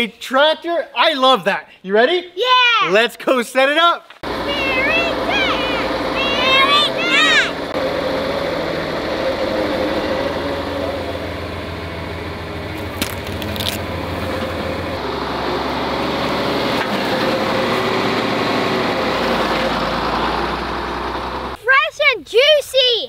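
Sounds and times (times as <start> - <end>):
tractor engine running: 4.2 - 21.6.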